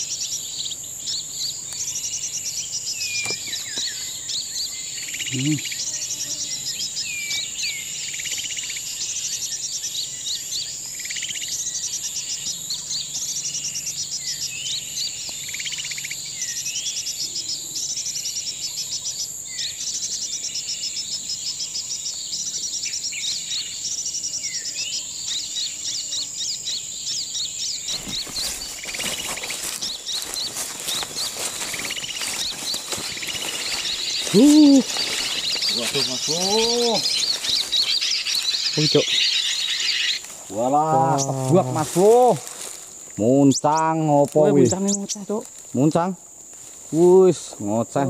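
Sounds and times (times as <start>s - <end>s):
bird chirps: 0.0s - 46.1s
insects trilling and buzzing: 0.0s - 48.0s
footsteps through undergrowth: 27.8s - 43.2s, 44.2s - 47.1s.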